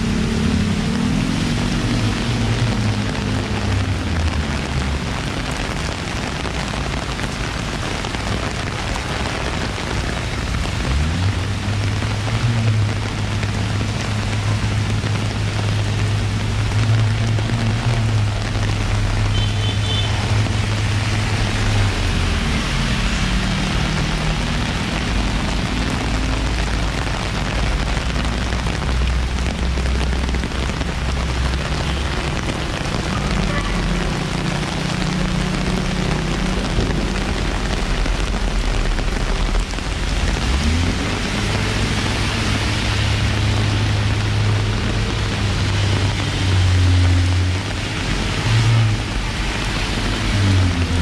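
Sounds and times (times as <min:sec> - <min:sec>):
heavy rain on pavement: 0:00.0 - 0:51.0
traffic engines humming: 0:00.0 - 0:51.0.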